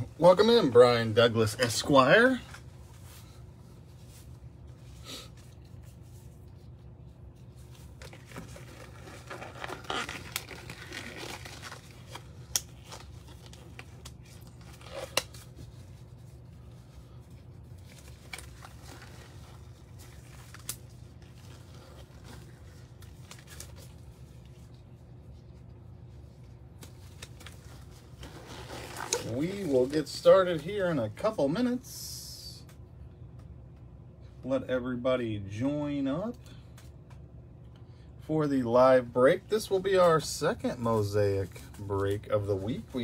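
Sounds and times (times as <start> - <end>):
crinkling and rustling: 0.0 - 31.7
steady low hum: 0.0 - 43.0.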